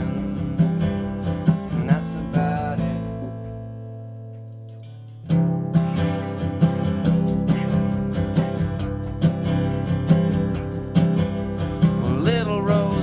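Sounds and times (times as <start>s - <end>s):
strummed acoustic guitar: 0.0s - 13.0s.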